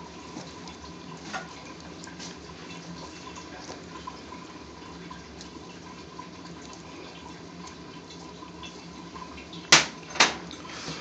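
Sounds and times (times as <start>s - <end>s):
kitchen background noise: 0.0s - 11.0s.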